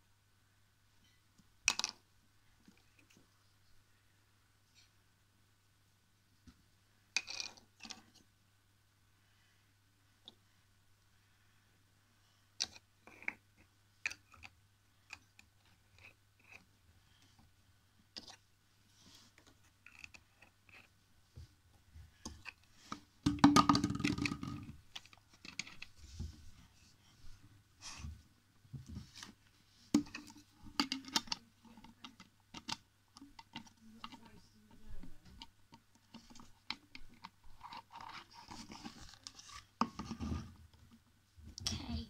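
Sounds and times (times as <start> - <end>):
bottles knocking on wooden floor: 23.3 - 24.4.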